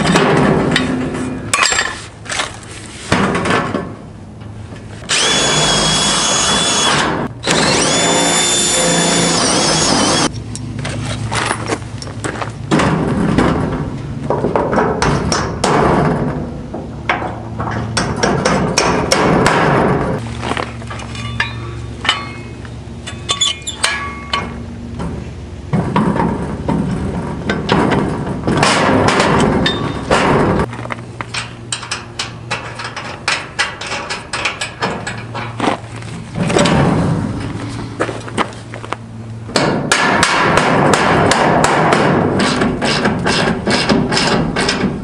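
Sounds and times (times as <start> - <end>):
scraping and handling noise: 0.0 - 5.1
hammering on metal: 39.5 - 45.0.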